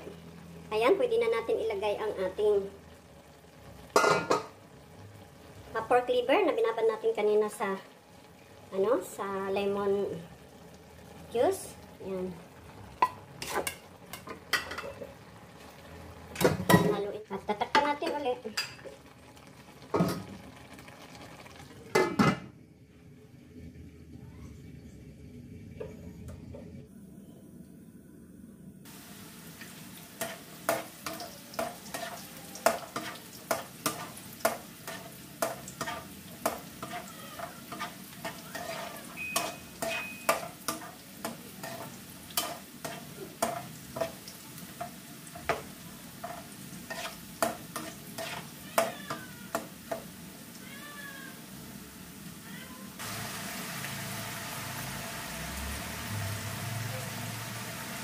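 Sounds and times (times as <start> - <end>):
vegetables sizzling in oil: 0.0 - 22.2, 28.9 - 58.0
spatula striking wok: 30.2 - 44.2.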